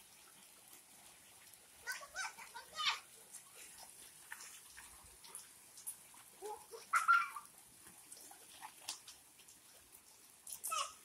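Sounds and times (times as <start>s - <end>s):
bare feet splashing in puddle: 1.8s - 10.9s.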